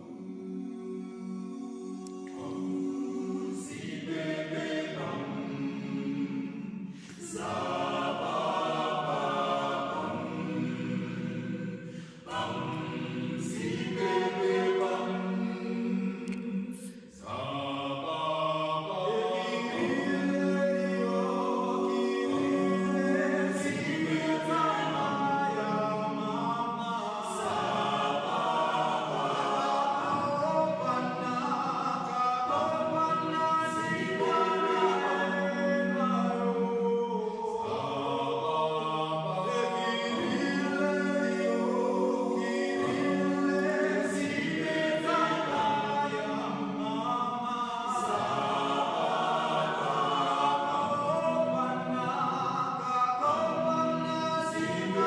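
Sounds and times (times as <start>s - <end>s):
choir singing gospel music: 0.0s - 55.0s.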